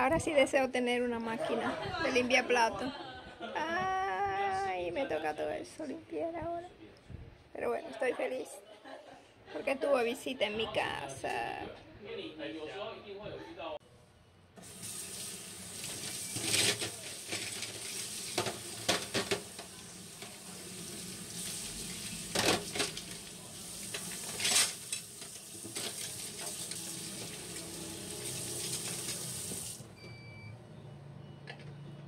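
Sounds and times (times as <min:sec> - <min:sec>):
dishes and utensils clattering: 0:15.8 - 0:20.4, 0:22.2 - 0:27.6
tap running into a steel sink: 0:15.8 - 0:20.5.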